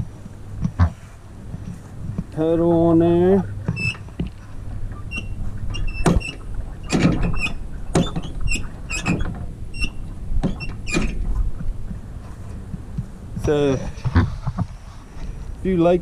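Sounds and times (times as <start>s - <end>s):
footsteps on grass: 0.0s - 5.7s
steady low rumble: 0.0s - 16.0s.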